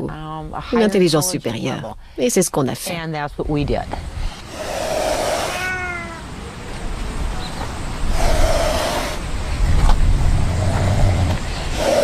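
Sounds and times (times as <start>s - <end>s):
wild cat hissing: 4.2s - 6.3s, 8.0s - 12.0s
low rumble: 9.2s - 11.5s.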